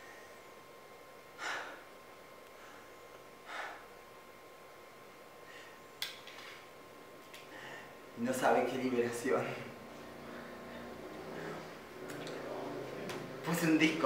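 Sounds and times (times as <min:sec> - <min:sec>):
steady hum: 0:00.0 - 0:14.0
heavy breaths: 0:01.4 - 0:01.9, 0:02.5 - 0:04.0, 0:05.4 - 0:05.8, 0:07.4 - 0:08.0, 0:09.6 - 0:12.6.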